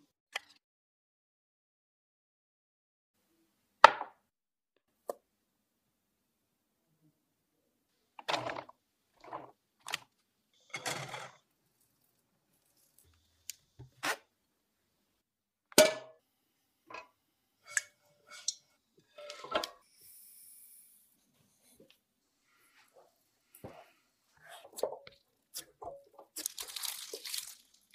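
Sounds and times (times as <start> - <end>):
sugar pouring into pan: 26.4 - 27.9.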